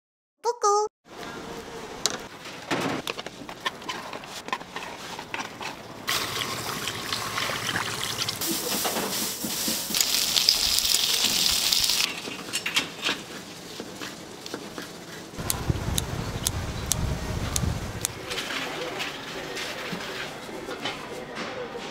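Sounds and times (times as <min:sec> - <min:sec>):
liquid pouring and splashing: 0:06.1 - 0:08.8.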